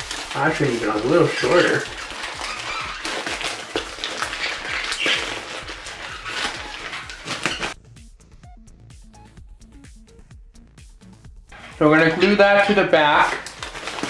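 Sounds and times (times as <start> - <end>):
newspaper crumpling: 0.0 - 7.8, 11.6 - 14.0
quiet background music: 0.0 - 14.0.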